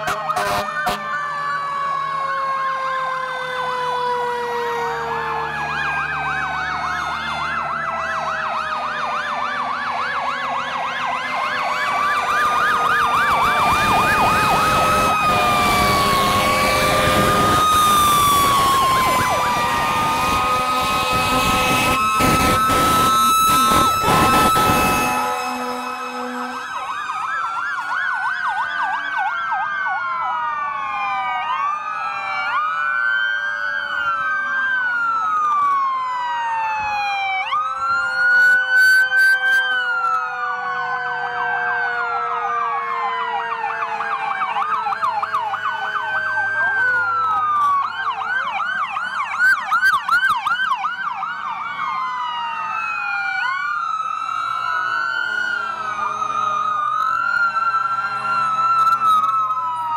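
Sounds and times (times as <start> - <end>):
sirens wailing and yelping: 0.0 - 59.9
loud short horn blasts: 0.1 - 1.0, 20.1 - 26.8.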